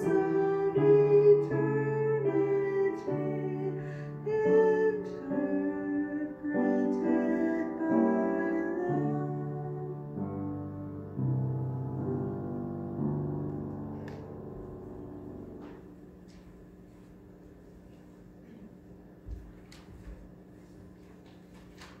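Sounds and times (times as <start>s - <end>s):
hymn singing: 0.0s - 9.9s.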